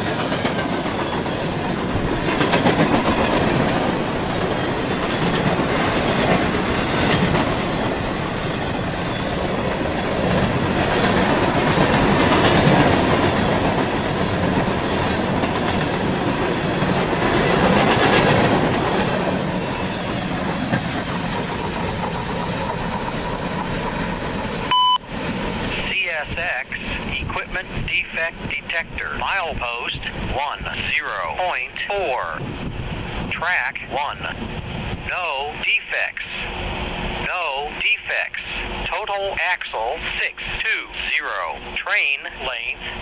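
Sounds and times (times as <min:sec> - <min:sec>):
freight train wheels rumbling: 0:00.0 - 0:43.0
loud electronic beep: 0:24.7 - 0:25.0.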